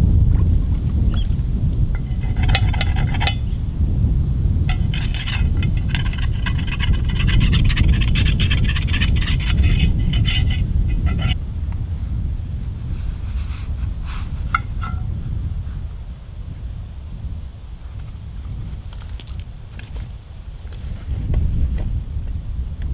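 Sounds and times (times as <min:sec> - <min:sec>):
wind buffeting microphone: 0:00.0 - 0:22.9
pan being scrubbed: 0:02.0 - 0:03.5, 0:04.7 - 0:11.4, 0:13.3 - 0:15.1.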